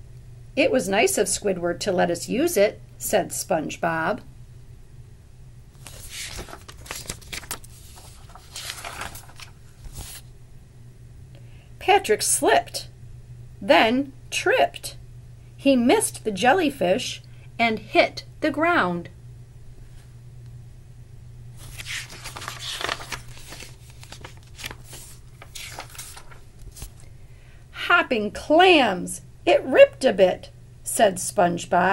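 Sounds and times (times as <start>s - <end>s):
paper page rustling: 5.8s - 10.3s, 21.6s - 27.1s.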